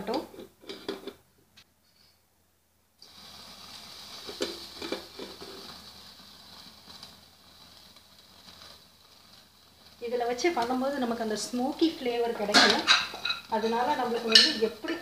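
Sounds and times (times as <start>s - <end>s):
chicken sizzling on grill: 3.0s - 15.0s.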